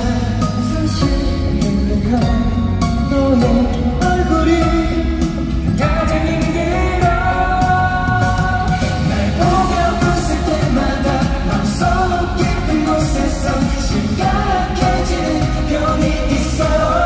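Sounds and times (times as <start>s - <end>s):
full band backing track: 0.0s - 17.0s
sung melody with held notes: 0.0s - 17.0s.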